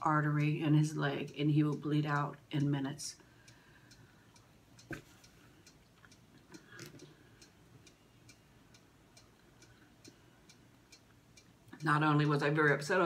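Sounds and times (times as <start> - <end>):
faint steady ticking: 0.0 - 13.0.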